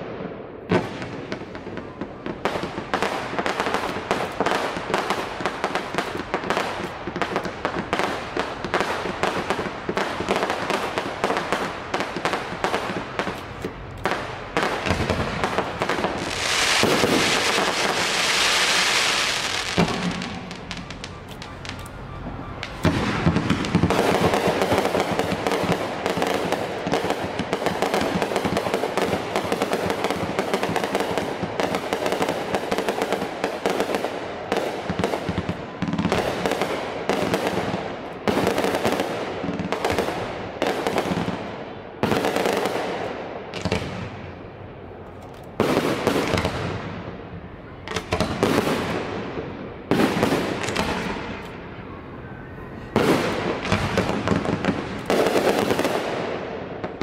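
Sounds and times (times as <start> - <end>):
fireworks bursts and crackle: 0.0 - 57.0.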